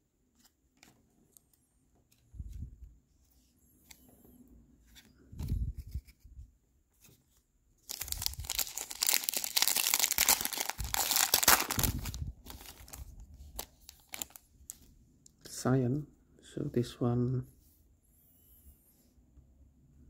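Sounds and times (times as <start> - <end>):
soft thumps of cards handled: 2.0 - 6.4
foil wrapper crinkling and tearing: 7.8 - 14.4.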